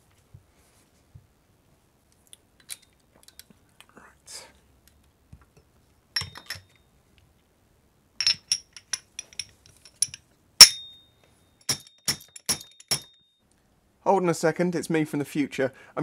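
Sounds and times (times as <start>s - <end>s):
metal hammer clinking on metal: 6.2s - 6.8s, 8.2s - 11.0s, 11.6s - 13.2s.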